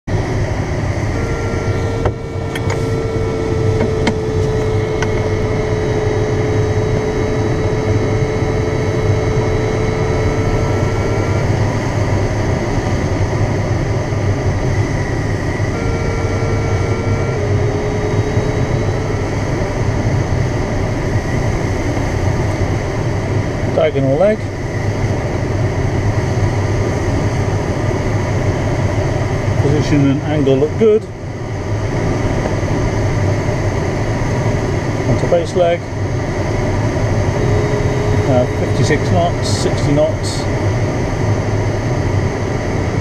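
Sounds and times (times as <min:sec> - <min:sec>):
rush of air over cockpit: 0:00.0 - 0:43.0
steady electronic tone: 0:00.1 - 0:43.0.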